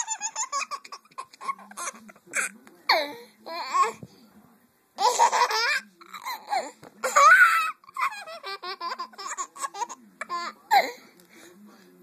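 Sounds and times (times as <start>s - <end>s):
baby laughing: 0.0s - 2.5s, 5.0s - 10.9s.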